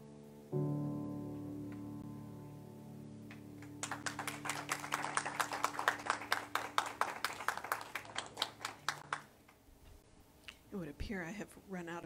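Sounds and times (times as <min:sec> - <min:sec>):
piano chord ringing: 0:00.0 - 0:07.0
audience clapping: 0:03.3 - 0:09.3.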